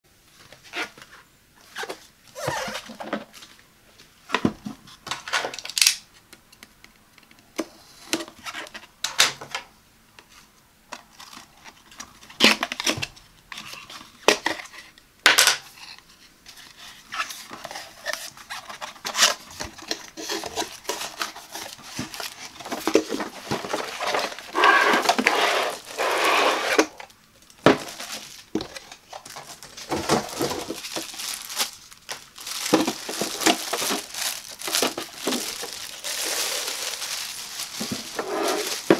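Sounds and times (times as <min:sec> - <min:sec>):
rustling and scraping: 0:15.6 - 0:38.9
plastic crinkling: 0:16.6 - 0:38.9.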